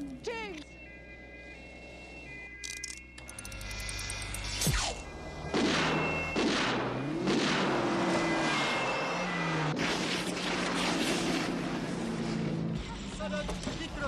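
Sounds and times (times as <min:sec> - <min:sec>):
cars sliding on ice swishes: 0:08.4 - 0:12.5.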